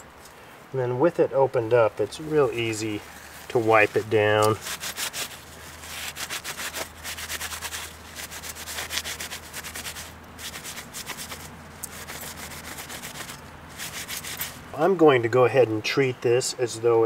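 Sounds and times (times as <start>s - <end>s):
paper towel rubbing metal: 2.2s - 14.6s.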